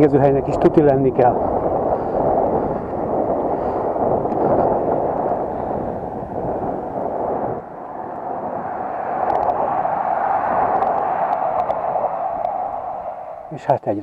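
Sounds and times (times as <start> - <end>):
wind rush on camera: 0.0 - 14.0
faint clicks: 9.2 - 9.7, 10.7 - 11.8.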